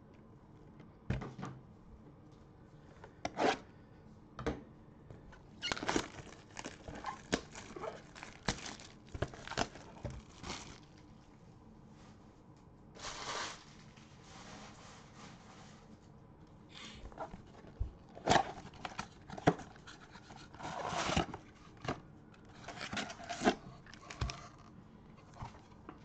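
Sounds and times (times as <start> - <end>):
plastic cases rustling and knocking: 5.6 - 11.0, 17.1 - 22.0, 22.6 - 24.6.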